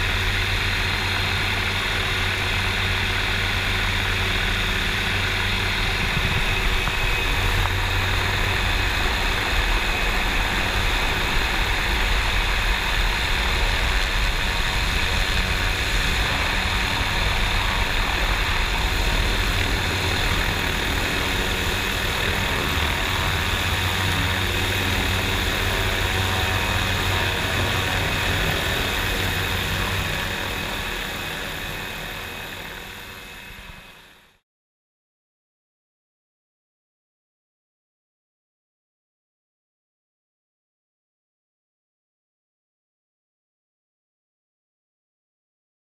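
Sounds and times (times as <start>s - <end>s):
helicopter rotor and engine noise: 0.0s - 34.4s.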